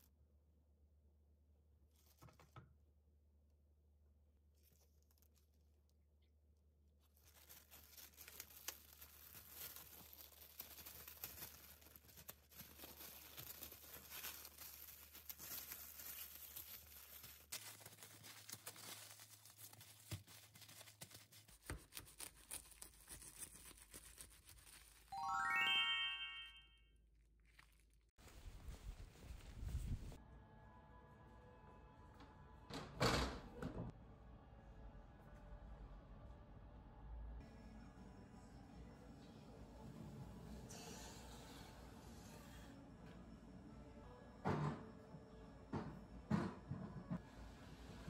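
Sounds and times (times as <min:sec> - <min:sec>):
wrapping paper crinkling: 0:04.4 - 0:06.0, 0:07.0 - 0:25.3, 0:27.2 - 0:29.5
rising chime sound effect: 0:25.2 - 0:26.8.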